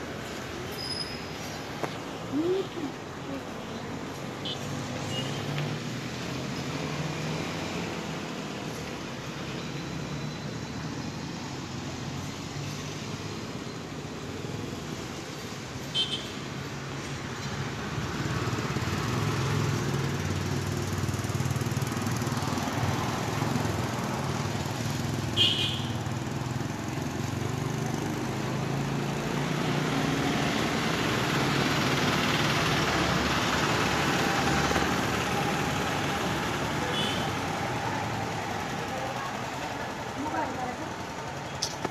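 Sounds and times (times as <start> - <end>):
broad hiss of street noise: 0.0 - 41.9
vehicle engines running: 17.0 - 25.3, 26.0 - 41.9.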